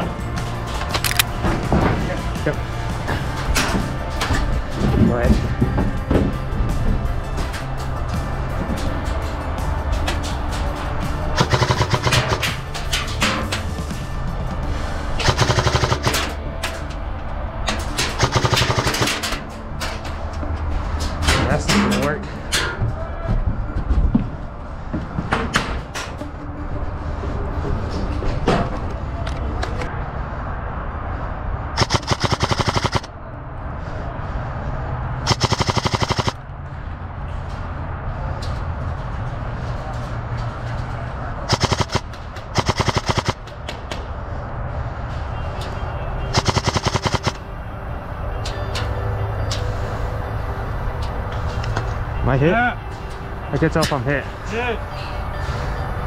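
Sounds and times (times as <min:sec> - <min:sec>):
airsoft gun full-auto bursts: 0:11.4 - 0:12.4, 0:15.2 - 0:16.2, 0:18.2 - 0:19.1, 0:31.8 - 0:33.1, 0:35.3 - 0:36.4, 0:41.5 - 0:42.0, 0:42.6 - 0:43.4, 0:46.4 - 0:47.4.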